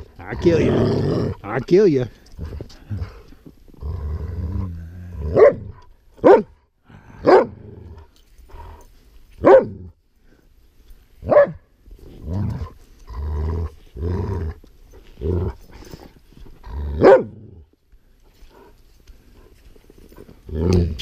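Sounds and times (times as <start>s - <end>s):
dog growling low: 0.0s - 1.5s, 2.1s - 5.8s, 7.0s - 8.9s, 12.1s - 17.7s, 20.1s - 21.0s
dog barking sharply: 6.2s - 6.5s.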